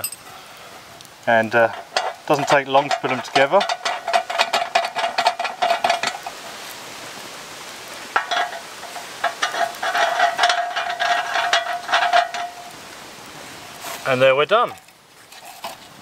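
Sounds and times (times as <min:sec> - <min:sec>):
metal threads grating and squeaking: 0:01.4 - 0:06.6, 0:08.1 - 0:12.8.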